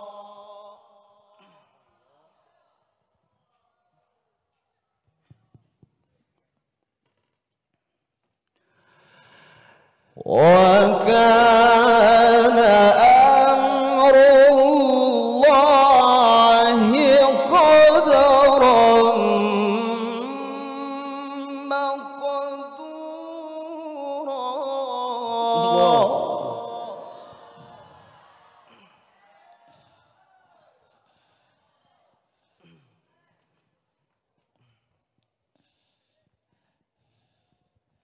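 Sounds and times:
man reciting melodically through microphone: 0.0 - 1.2, 10.2 - 27.8.

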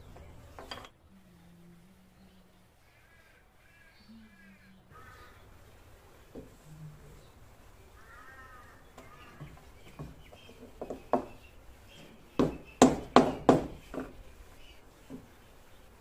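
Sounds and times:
sharp wooden knocks: 8.9 - 11.5, 12.3 - 14.2.

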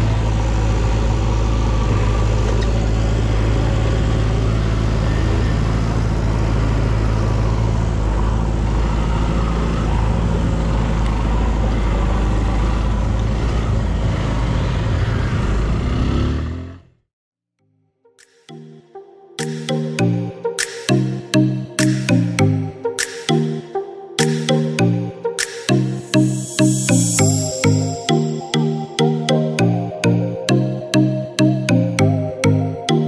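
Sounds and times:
wind and road noise: 0.0 - 16.9.

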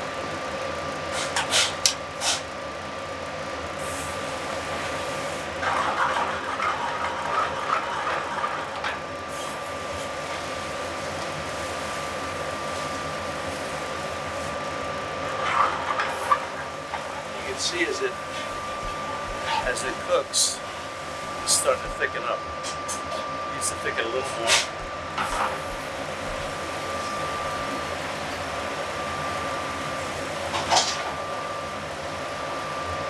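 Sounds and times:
kitchen exhaust hood hum: 0.0 - 33.0
faint steady whine: 6.6 - 33.0.

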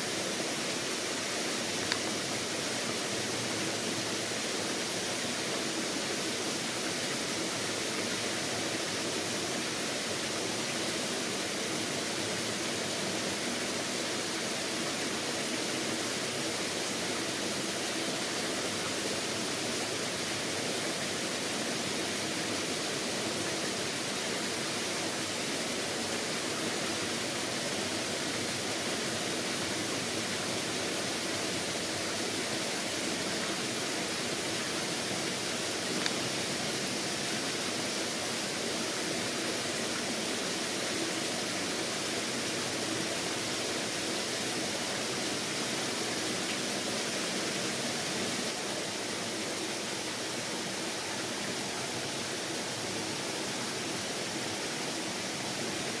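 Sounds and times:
faint tick: 1.8 - 2.1, 36.0 - 36.2.

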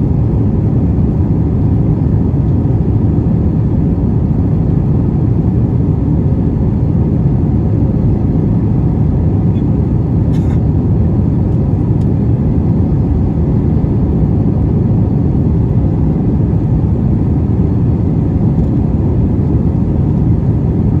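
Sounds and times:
jet engine and airflow cabin rumble: 0.0 - 21.0.

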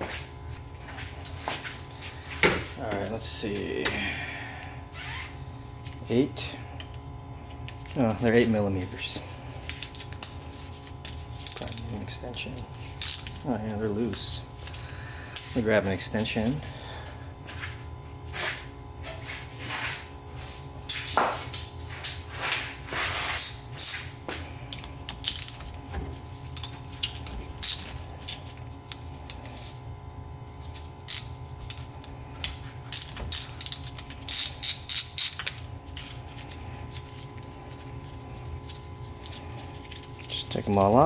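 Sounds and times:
hand ratchet clicking: 32.9 - 35.5.

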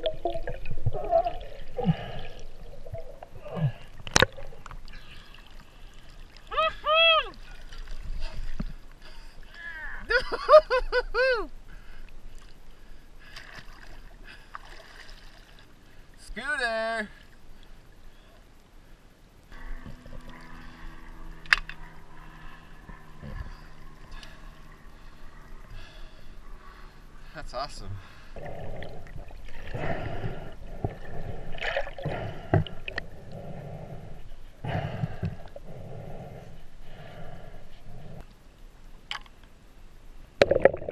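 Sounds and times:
muffled underwater rushing: 0.0 - 6.6, 27.9 - 38.2
water sloshing and splashing: 0.0 - 6.6, 7.3 - 9.0, 12.3 - 16.1, 28.0 - 33.3.

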